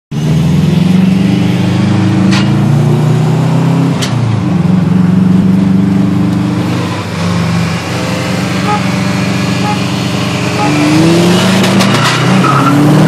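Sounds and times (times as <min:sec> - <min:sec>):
car engine accelerating: 0:00.2 - 0:13.0.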